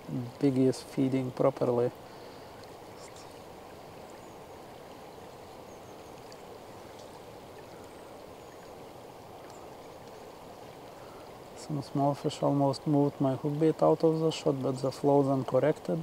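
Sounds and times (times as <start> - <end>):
fast-flowing river water: 0.0 - 16.0
faint ticks: 1.9 - 3.4, 5.8 - 8.8, 9.4 - 11.4.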